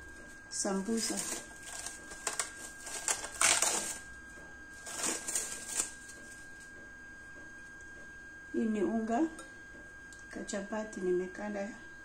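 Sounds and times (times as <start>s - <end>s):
cling film crinkling: 0.0s - 6.7s.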